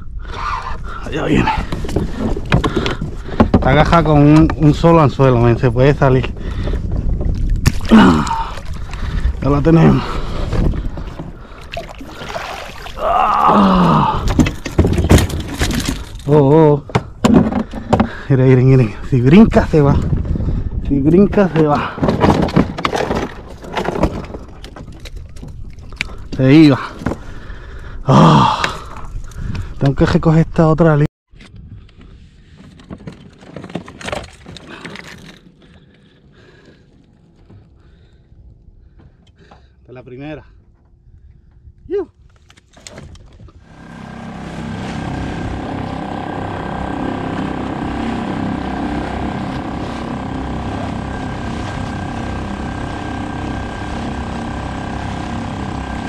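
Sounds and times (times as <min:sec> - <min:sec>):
loud strained groan: 0:07.8 - 0:16.3, 0:26.8 - 0:29.1, 0:43.6 - 0:56.0
fishing gear knocking and rattling: 0:14.2 - 0:16.3
knocks against plastic hull: 0:16.8 - 0:18.2.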